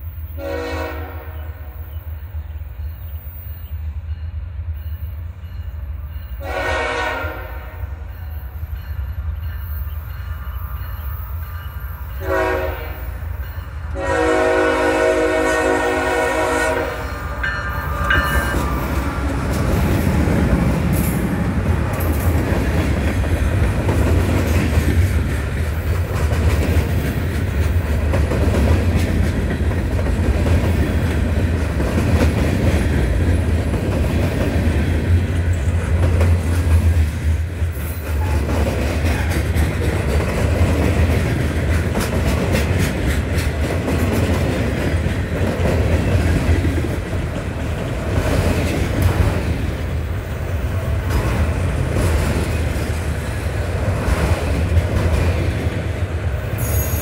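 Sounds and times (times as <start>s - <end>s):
freight train rumbling past: 0.0s - 57.0s
locomotive horn: 0.4s - 1.8s, 6.4s - 8.0s, 12.2s - 13.2s, 13.9s - 19.5s.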